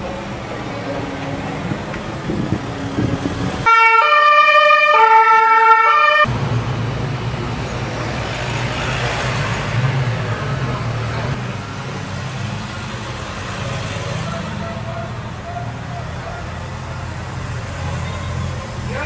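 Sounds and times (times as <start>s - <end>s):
two-tone siren: 3.6s - 6.3s.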